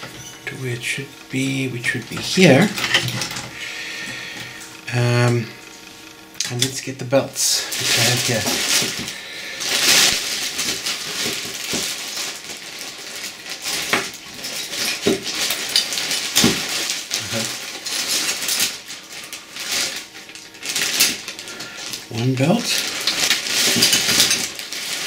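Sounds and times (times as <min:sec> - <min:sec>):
rummaging in a bag: 0:07.4 - 0:25.0.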